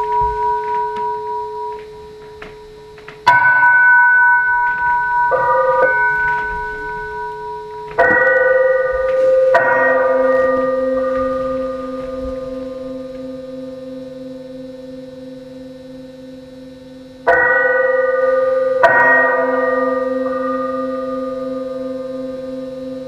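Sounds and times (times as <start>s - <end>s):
bell-like tones ringing: 0.0s - 14.7s.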